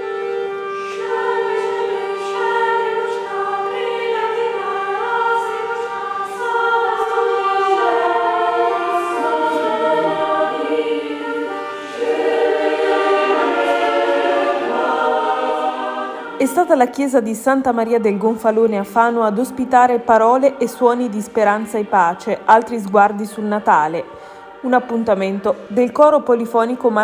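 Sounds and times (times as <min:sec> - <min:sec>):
accordion accompaniment: 0:00.0 - 0:17.8
mixed choir singing: 0:00.0 - 0:27.0.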